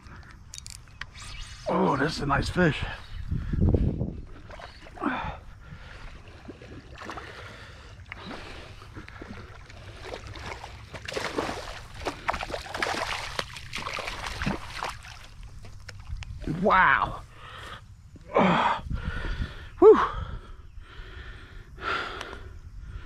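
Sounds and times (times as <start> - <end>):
fish thrashing and splashing: 6.0 - 16.2.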